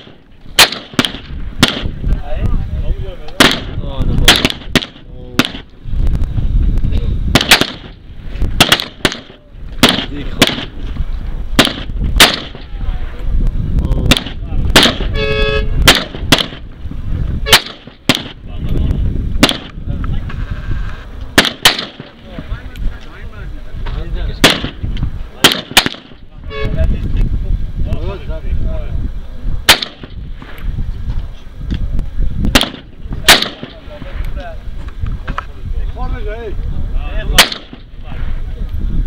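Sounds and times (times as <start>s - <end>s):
gunshots: 0.0s - 2.0s, 3.4s - 5.7s, 7.3s - 8.0s, 8.6s - 10.8s, 11.6s - 12.7s, 14.0s - 15.1s, 15.8s - 16.7s, 17.5s - 18.4s, 19.4s - 19.8s, 21.4s - 22.3s, 24.4s - 24.8s, 25.4s - 26.2s, 29.7s - 30.2s, 32.5s - 33.9s, 37.3s - 37.9s.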